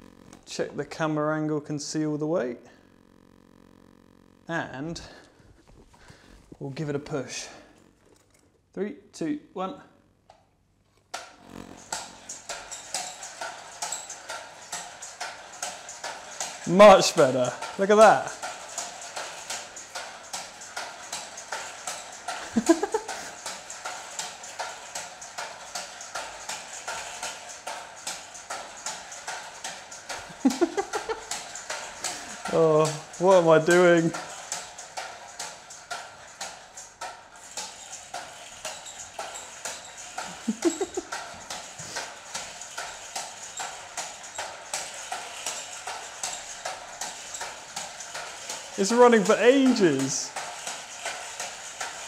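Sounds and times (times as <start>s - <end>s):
air engine chuffing: 11.5s - 35.7s.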